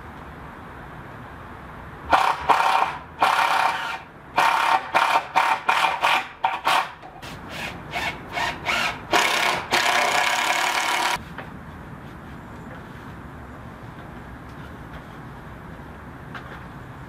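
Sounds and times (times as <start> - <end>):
power drill driving screws: 2.2 - 6.9, 7.5 - 11.2.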